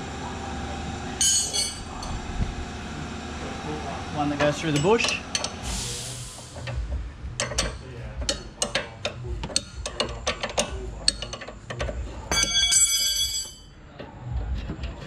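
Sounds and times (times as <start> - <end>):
metal tools clattering: 1.2 - 2.2, 7.4 - 13.8
hand ratchet clicking: 7.4 - 12.0.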